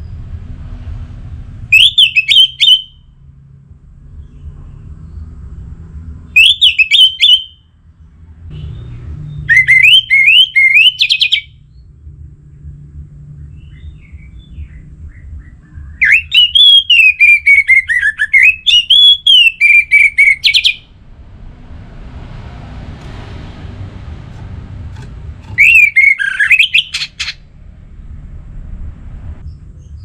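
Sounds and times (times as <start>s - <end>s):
thrush singing warbling notes: 19.2s - 27.8s.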